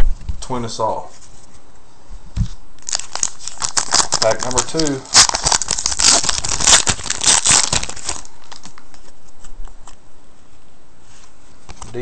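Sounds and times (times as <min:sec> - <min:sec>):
foil wrapper tearing and crinkling: 0:02.8 - 0:08.8.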